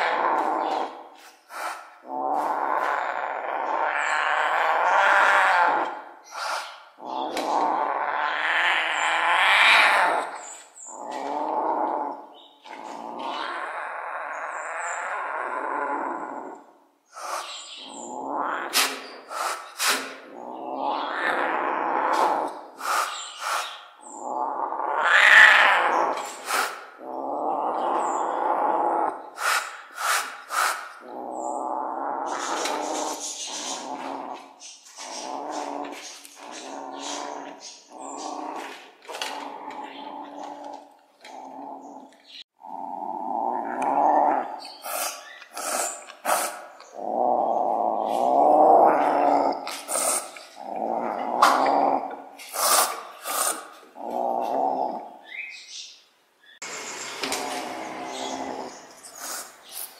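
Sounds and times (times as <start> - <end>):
cat growling and snarling: 0.0 - 55.4, 56.6 - 59.9
cat spitting hisses: 18.8 - 20.2, 22.8 - 23.6, 26.4 - 26.8, 29.4 - 30.9, 44.8 - 46.7, 52.4 - 53.7.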